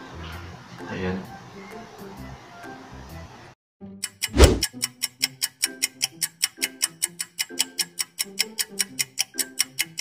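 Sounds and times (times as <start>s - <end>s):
ticking clock-like beat: 4.0s - 10.0s.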